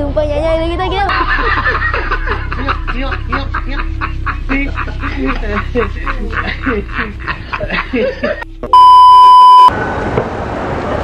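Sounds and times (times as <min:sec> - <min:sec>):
men laughing hard: 0:01.1 - 0:08.7
bleep tone: 0:08.7 - 0:09.7.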